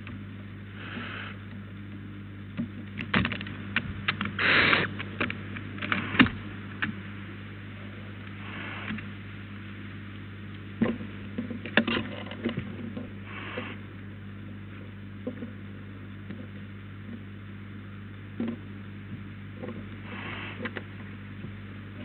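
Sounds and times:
low electrical hum: 0.0 - 22.0
short hissing bursts: 0.8 - 1.4, 4.4 - 4.9, 8.4 - 9.0, 20.1 - 20.6
faint clicks and knocks: 1.4 - 7.0.

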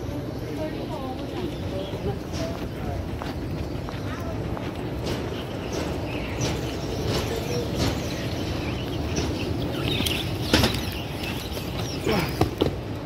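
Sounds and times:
baggage carousel rumble: 0.0 - 13.0
sharp metallic clacks: 4.9 - 10.9.

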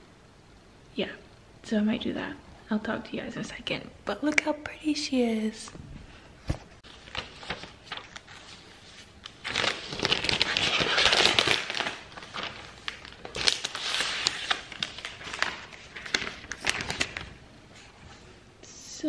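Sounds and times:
plastic wrap crinkling: 6.8 - 17.9.

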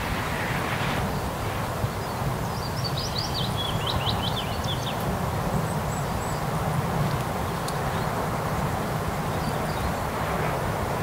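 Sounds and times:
highway traffic rushing: 0.0 - 2.5, 5.1 - 11.0.

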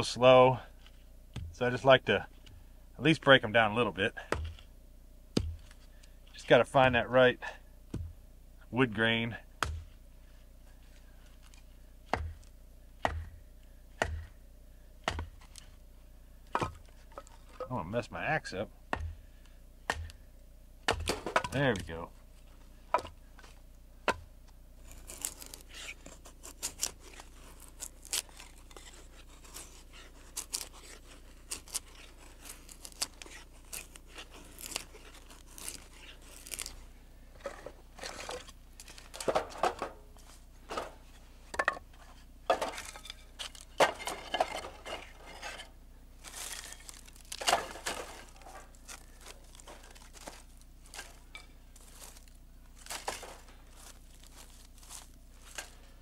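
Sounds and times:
blade shaving and splitting wood: 10.8 - 13.4, 14.0 - 14.4, 15.0 - 15.8, 16.5 - 19.2, 19.8 - 20.2, 20.8 - 41.2, 41.9 - 56.0
sticks stacked in steel fire pit: 40.7 - 45.7.

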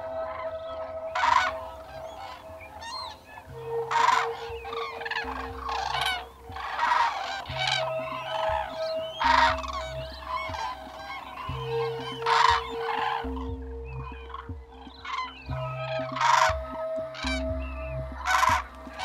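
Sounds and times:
cranes trumpeting calls: 0.0 - 19.0
sustained background music: 0.0 - 19.0.

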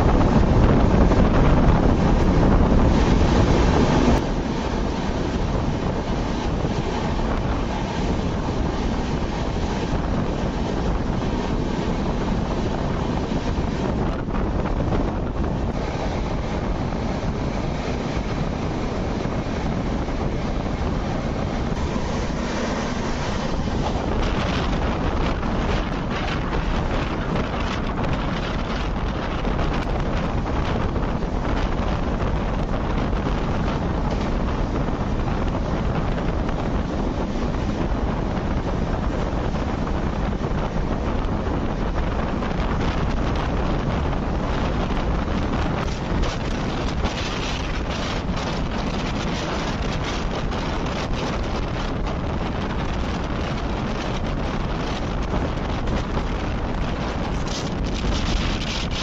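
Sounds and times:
train wheels rumbling on rails: 0.0 - 59.0
wind buffeting microphone: 0.0 - 59.0
sharp clatter: 54.8 - 59.0.

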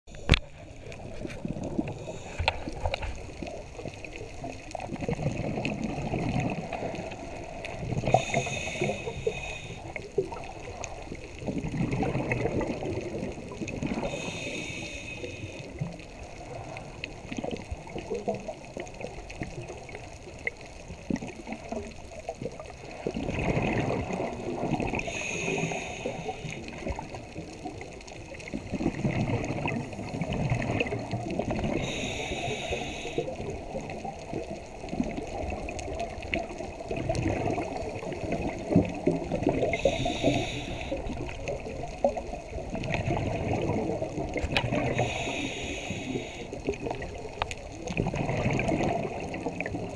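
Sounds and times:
exhaled bubbles gurgling: 0.1 - 49.9
regulator inhale hiss: 1.8 - 3.0, 6.8 - 10.2, 14.0 - 17.0, 24.9 - 27.1, 31.7 - 33.7, 39.6 - 41.6, 44.8 - 46.8.

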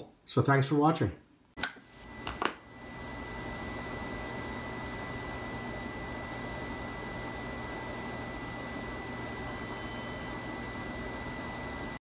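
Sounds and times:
high-pitched steady tone: 7.2 - 12.0.

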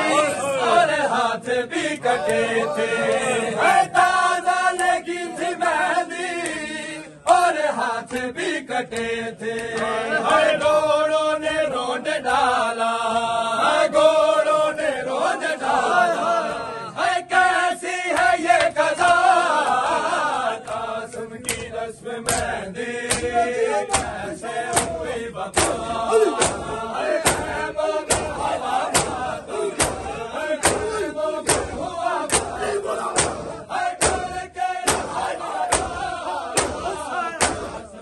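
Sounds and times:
men chanting in unison: 0.0 - 38.0
hands slapping chests: 4.7 - 5.0, 6.4 - 6.7, 7.3 - 10.0, 18.1 - 20.0, 20.6 - 37.9.

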